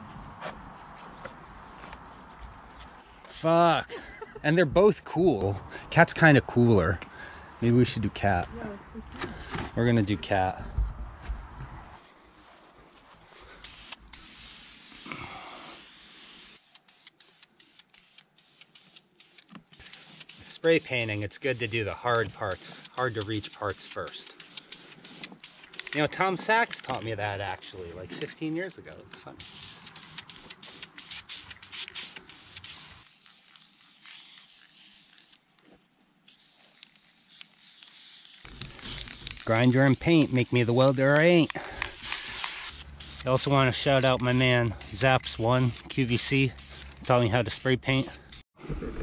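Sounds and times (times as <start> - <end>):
insects trilling: 0.0 - 48.5
spray paint can hissing: 13.5 - 27.0, 29.3 - 35.5, 36.2 - 48.4.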